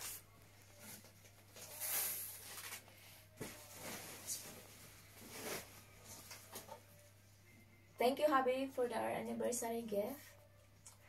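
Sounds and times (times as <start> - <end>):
packaging rustling and crinkling: 0.8 - 6.5.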